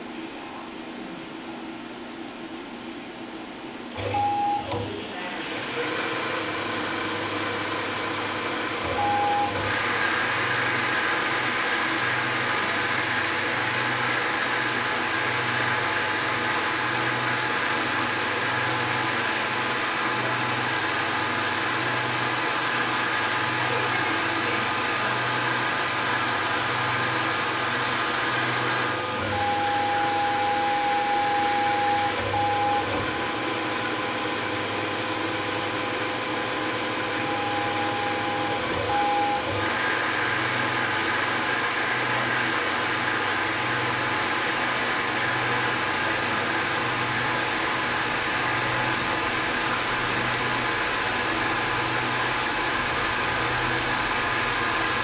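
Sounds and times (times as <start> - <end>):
milling machine humming: 3.9 - 55.0
steady high machine tone: 8.9 - 10.8, 28.8 - 33.5, 37.2 - 39.5.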